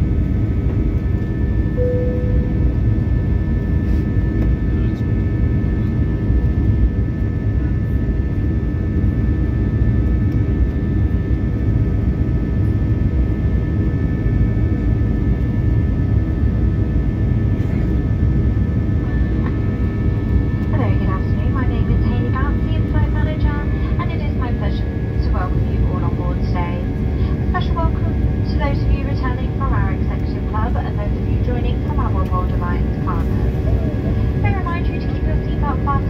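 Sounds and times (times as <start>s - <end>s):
engine whine: 0.0s - 36.0s
brief tone: 1.7s - 2.9s
jet engine roar: 8.3s - 36.0s.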